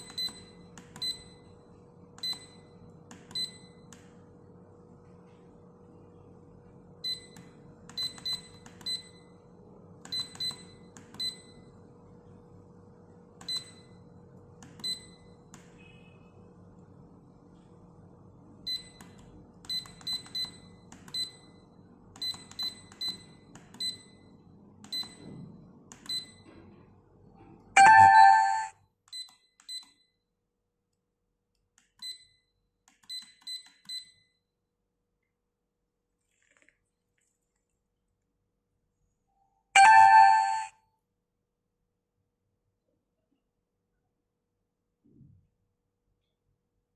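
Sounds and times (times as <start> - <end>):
short high clock beeps: 27.8 - 29.3, 39.8 - 40.7.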